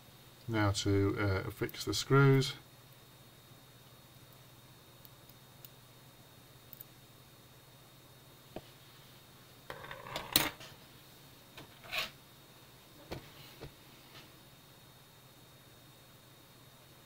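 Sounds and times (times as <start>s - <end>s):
brief scrape: 11.8s - 12.2s.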